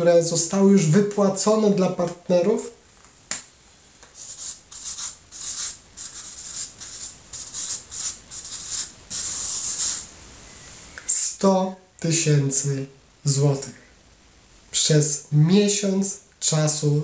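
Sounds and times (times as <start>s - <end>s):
marker pen scratching on paper: 4.2s - 10.1s.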